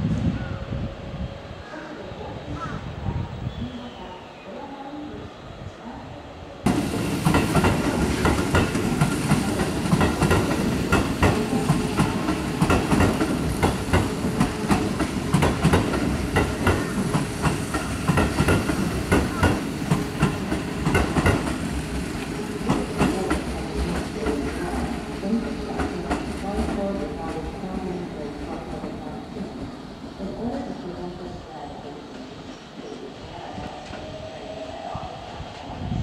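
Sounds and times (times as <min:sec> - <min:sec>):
train rumble: 0:04.8 - 0:36.0
train wheels clacking over rail joints: 0:06.7 - 0:22.0.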